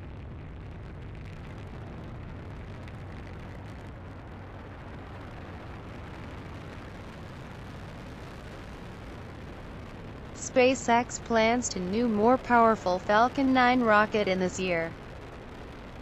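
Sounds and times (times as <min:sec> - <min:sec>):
rocket engines rumbling: 0:00.0 - 0:16.0.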